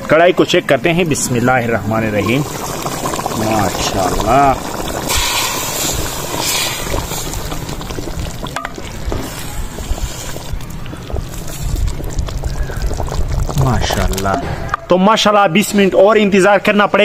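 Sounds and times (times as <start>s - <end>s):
curry simmering in a pot: 0.0s - 14.4s
wind rumble on microphone: 3.8s - 14.8s.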